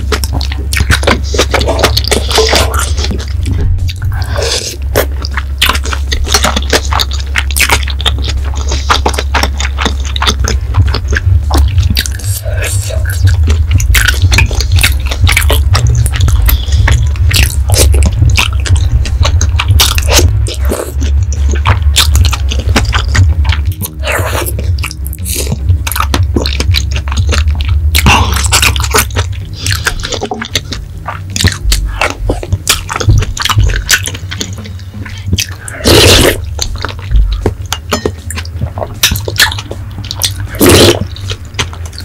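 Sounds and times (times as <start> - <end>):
mouth clicks and smacks: 0.0 - 42.0
wet chewing and biting: 0.0 - 42.0
slurping noodles: 35.3 - 36.5, 40.2 - 41.2.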